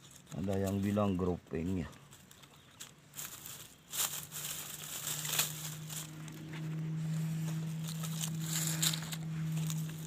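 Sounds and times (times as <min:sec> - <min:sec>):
leaves and twigs rustling: 0:00.0 - 0:10.0
steady low hum: 0:01.9 - 0:10.0.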